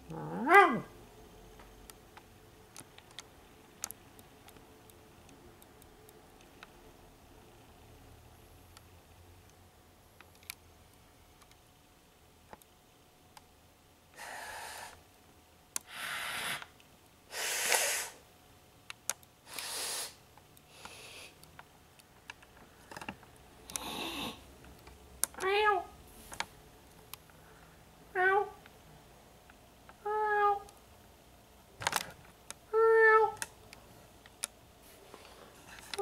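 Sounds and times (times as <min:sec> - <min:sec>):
person breathing: 0:14.2 - 0:15.0, 0:15.8 - 0:16.7, 0:19.5 - 0:21.4.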